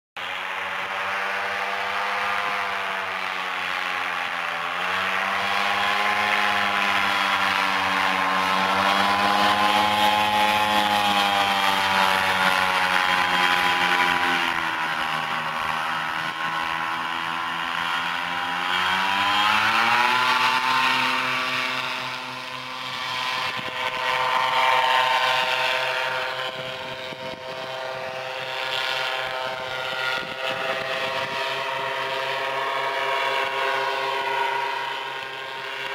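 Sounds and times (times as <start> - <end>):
paramotor engine and propeller: 0.2 - 35.9.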